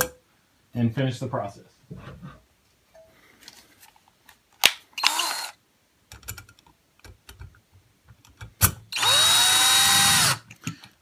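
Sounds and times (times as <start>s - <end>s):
drill click: 4.6s - 5.6s, 9.0s - 10.7s
power drill spinning: 5.0s - 5.6s, 8.9s - 10.5s.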